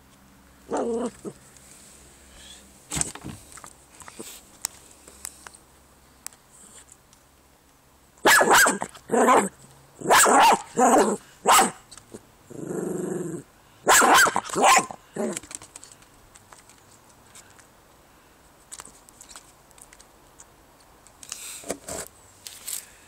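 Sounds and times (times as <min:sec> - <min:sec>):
dog growling low: 0:00.7 - 0:01.4, 0:12.5 - 0:13.5, 0:15.1 - 0:15.4
dog barking excitedly: 0:08.2 - 0:11.9, 0:13.8 - 0:15.4.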